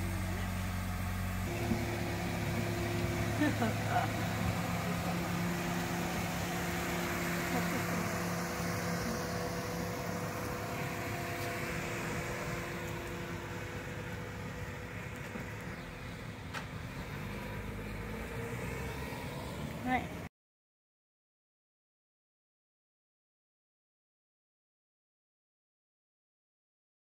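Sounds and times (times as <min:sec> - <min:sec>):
car engine driving off: 0:00.0 - 0:20.3.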